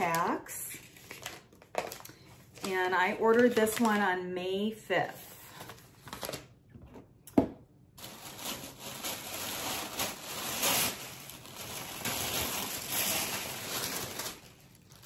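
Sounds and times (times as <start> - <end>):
tissue paper rustling: 8.0 - 15.0.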